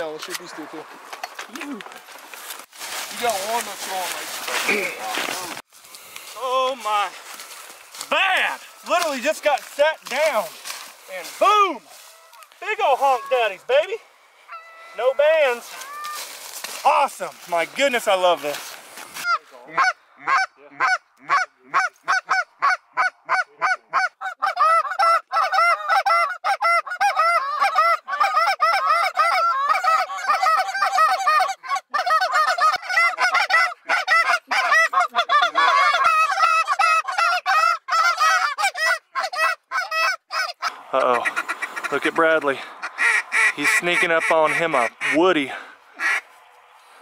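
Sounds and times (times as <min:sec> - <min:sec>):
goose honks and clucks: 0:06.5 - 0:16.3, 0:19.2 - 0:46.4.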